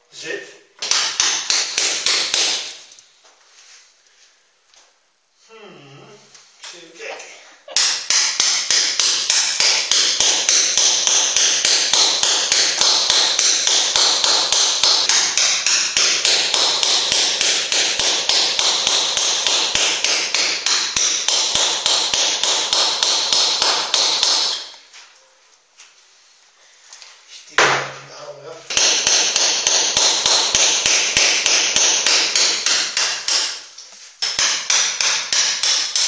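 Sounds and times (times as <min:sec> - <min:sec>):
hammer striking chisel: 0:00.8 - 0:02.8, 0:07.8 - 0:24.7, 0:28.7 - 0:36.0.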